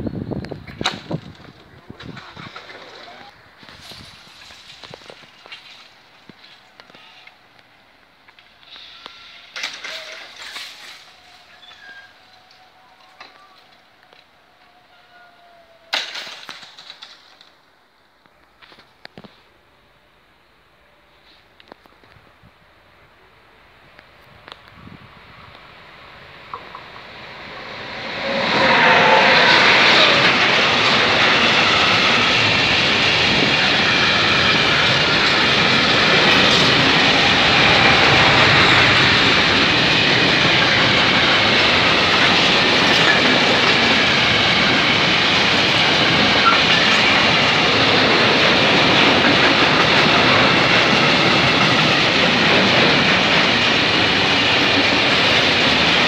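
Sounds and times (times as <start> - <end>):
freight train rolling past: 22.7 - 56.0.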